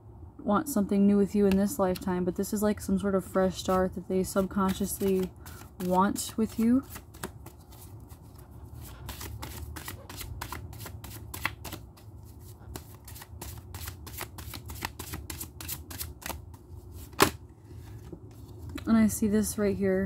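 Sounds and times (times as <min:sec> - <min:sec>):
cards being shuffled: 0:03.5 - 0:18.9.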